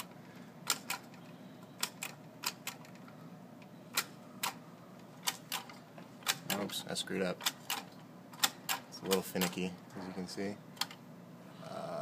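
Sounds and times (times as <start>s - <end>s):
push buttons clicking: 0.6s - 3.0s.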